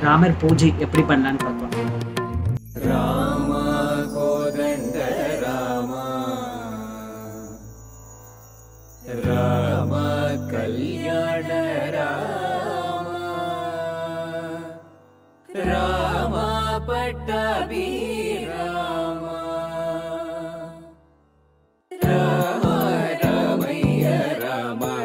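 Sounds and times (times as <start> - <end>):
devotional chant singing: 2.7 - 7.8, 9.0 - 21.0, 21.9 - 25.0.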